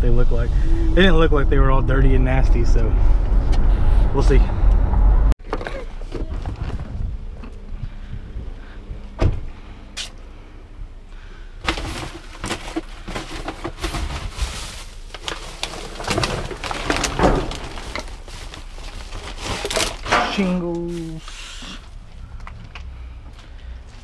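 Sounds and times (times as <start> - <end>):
plastic trash bags rustling: 11.6 - 22.0.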